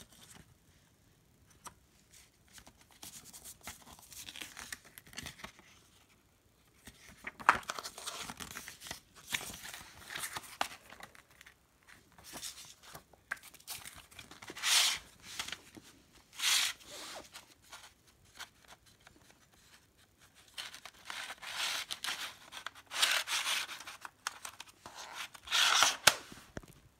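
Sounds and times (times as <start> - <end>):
paper pages rustling: 6.7 - 26.8.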